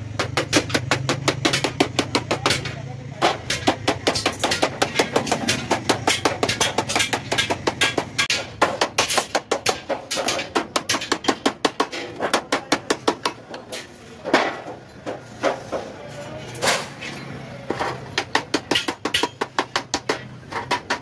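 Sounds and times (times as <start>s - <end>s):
hammer tapping on metal sheet: 0.1s - 15.8s, 17.7s - 21.0s.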